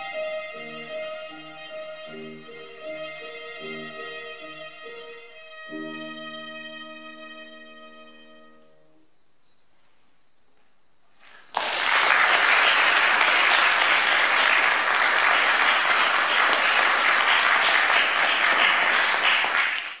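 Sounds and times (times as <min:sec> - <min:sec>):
audience applauding: 0:11.2 - 0:20.0.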